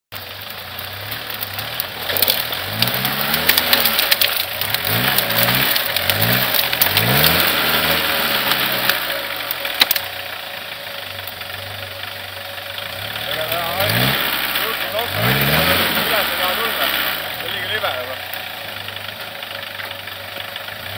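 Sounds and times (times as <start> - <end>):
diesel engine revving: 0.2 - 20.9
branches snapping: 1.0 - 10.3.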